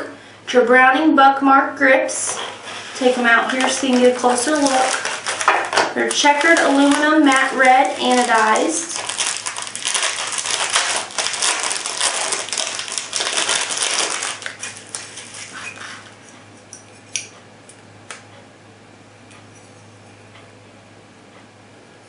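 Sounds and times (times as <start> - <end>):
plastic bag crinkling: 2.2 - 16.2.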